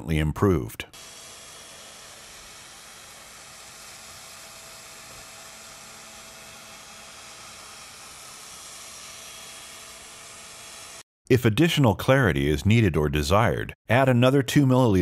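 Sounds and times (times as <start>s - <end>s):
drill polishing with faint whine: 0.9s - 11.0s.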